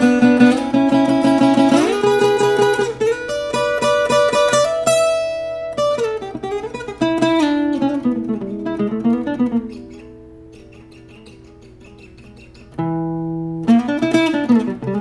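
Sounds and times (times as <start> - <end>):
fingerpicked acoustic guitar: 0.0 - 15.0.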